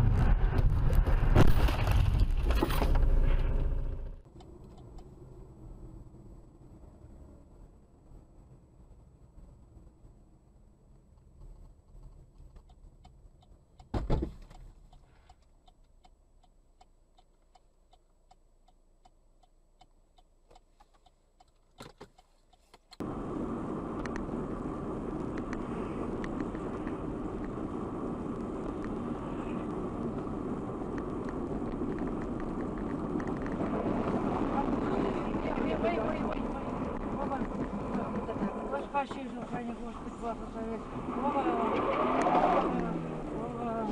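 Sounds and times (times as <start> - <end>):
tyre and wind noise: 0.0 - 4.0, 23.0 - 40.2
loud thump: 13.9 - 14.4.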